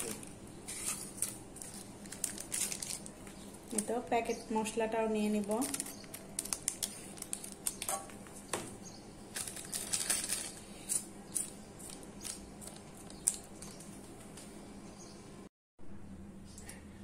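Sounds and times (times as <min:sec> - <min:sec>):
foil packet crinkling: 0:00.0 - 0:03.9, 0:05.3 - 0:08.4, 0:09.3 - 0:14.4
scissors snipping foil: 0:05.4 - 0:08.1.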